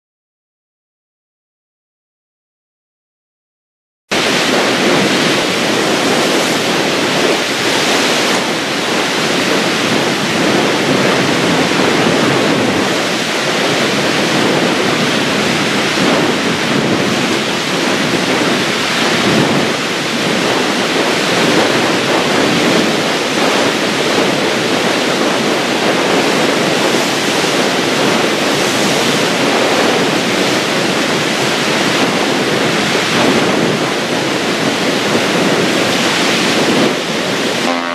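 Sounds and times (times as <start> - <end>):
strong wind: 4.1 - 37.9
waves splashing against stone shore: 4.2 - 37.9.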